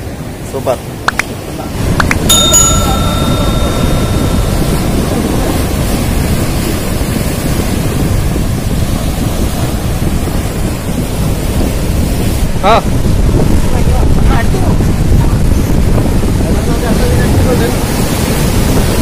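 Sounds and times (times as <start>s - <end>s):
wind buffeting microphone: 0.0s - 19.0s
surf breaking on rocks: 1.1s - 19.0s
bell chime ringing: 2.3s - 6.6s.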